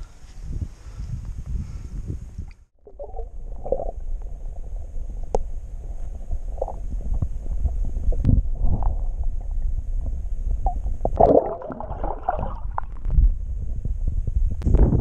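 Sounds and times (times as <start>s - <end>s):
muffled underwater rumble: 2.8s - 15.0s
water sloshing: 11.2s - 13.0s.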